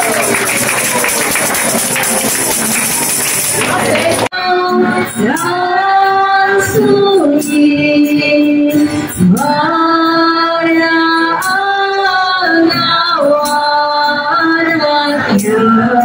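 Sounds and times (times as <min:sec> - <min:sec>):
group singing a carol: 0:09.2 - 0:16.0.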